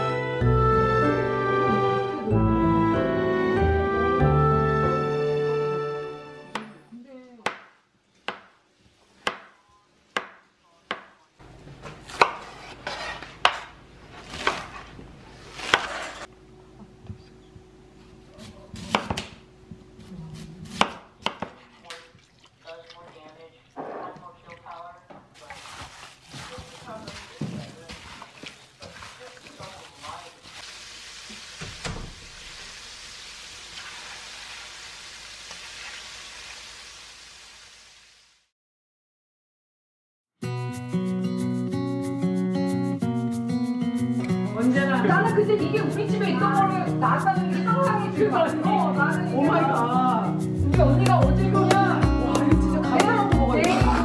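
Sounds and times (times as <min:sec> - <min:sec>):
knife chopping on cutting board: 0:09.2 - 0:09.6, 0:10.2 - 0:11.2, 0:11.8 - 0:14.8, 0:15.6 - 0:16.1, 0:18.4 - 0:19.4, 0:20.7 - 0:21.6
knife slicing green onions: 0:11.9 - 0:14.9, 0:15.5 - 0:16.3, 0:18.4 - 0:19.3, 0:20.4 - 0:21.6, 0:53.6 - 0:54.0
food deep-frying in hot oil: 0:28.0 - 0:38.5.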